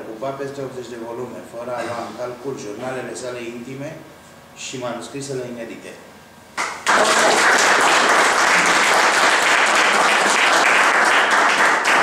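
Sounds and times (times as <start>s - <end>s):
group of people applauding: 6.6s - 12.0s.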